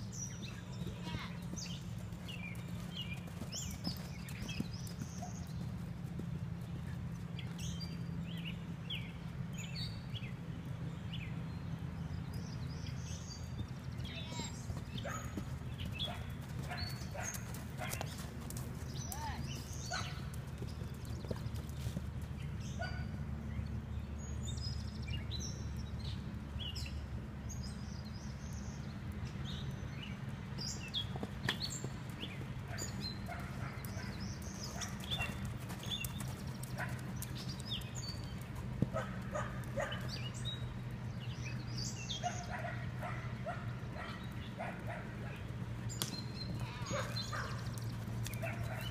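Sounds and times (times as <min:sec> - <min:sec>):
dog barking: 0:42.2 - 0:45.1, 0:46.8 - 0:47.6.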